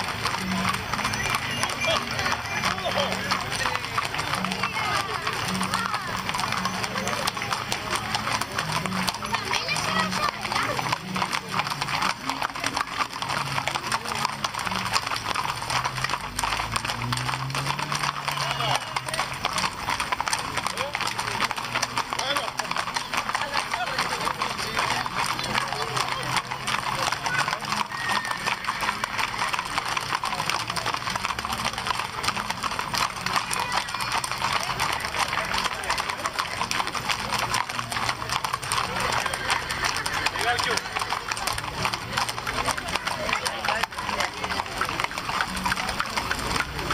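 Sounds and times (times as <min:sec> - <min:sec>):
horse hooves clip-clopping: 0:00.0 - 0:46.9
voices: 0:00.0 - 0:46.9.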